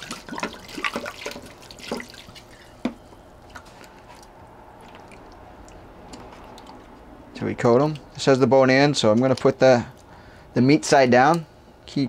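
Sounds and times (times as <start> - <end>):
wine glugging and splashing: 0.0 - 7.0.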